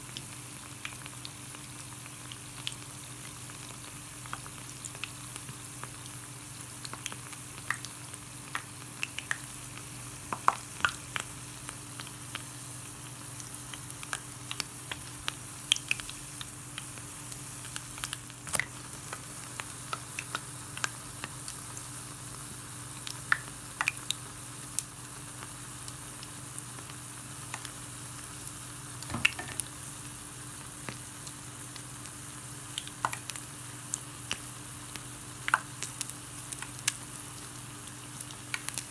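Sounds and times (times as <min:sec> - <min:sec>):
batter sizzling in hot oil: 0:00.0 - 0:38.9
faint steady hum: 0:00.0 - 0:38.9
oil popping and crackling: 0:13.4 - 0:17.0, 0:17.6 - 0:21.9, 0:29.0 - 0:29.9, 0:32.7 - 0:34.5, 0:35.4 - 0:38.9.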